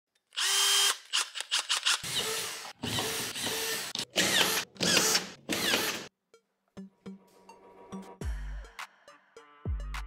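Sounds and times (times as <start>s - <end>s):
electric screwdriver running: 0.3s - 6.1s.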